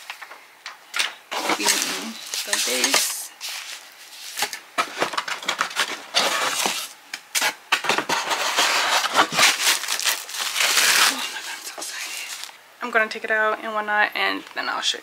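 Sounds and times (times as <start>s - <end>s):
plastic and foam rustling: 1.3s - 12.6s
pulp trays scraping and knocking: 4.4s - 9.4s.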